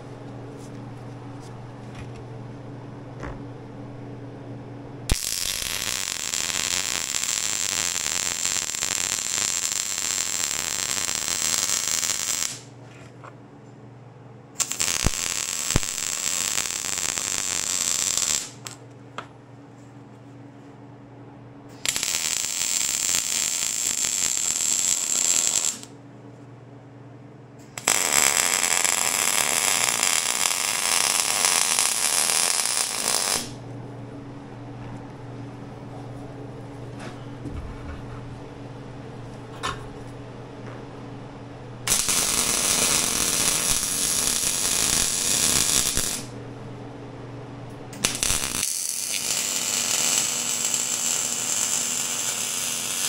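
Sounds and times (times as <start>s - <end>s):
steady low hum: 0.0s - 48.6s
welder arc crackling: 5.1s - 12.7s, 14.6s - 18.8s, 21.7s - 25.9s, 27.6s - 33.6s, 41.9s - 46.3s, 48.0s - 53.0s.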